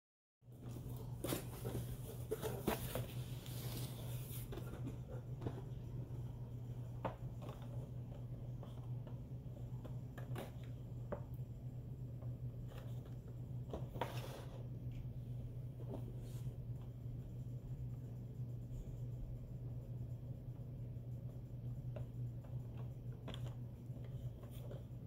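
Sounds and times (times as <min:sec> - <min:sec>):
steady low hum: 0:00.4 - 0:25.0
cardboard packaging rustling: 0:00.6 - 0:05.3.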